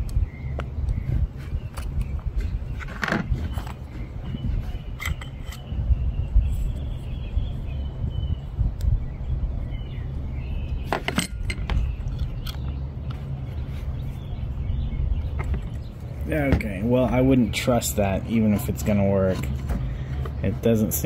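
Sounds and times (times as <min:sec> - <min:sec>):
steady low rumble: 0:00.0 - 0:21.0
screwdriver and fan parts clicking: 0:01.6 - 0:04.0, 0:04.8 - 0:05.7, 0:10.9 - 0:13.2.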